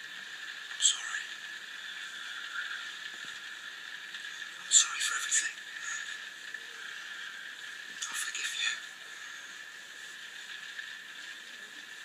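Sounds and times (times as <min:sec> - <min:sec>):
television hiss: 0:00.0 - 0:12.0.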